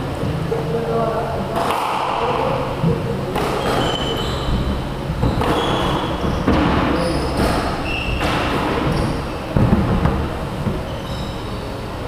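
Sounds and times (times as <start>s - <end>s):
squash ball cracking off racquets: 1.6s - 10.9s
shoes squeaking on wooden floor: 3.4s - 11.8s.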